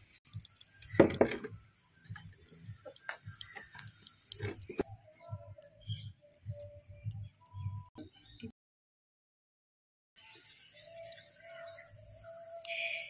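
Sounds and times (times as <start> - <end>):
faint steady whistling: 10.2 - 13.0.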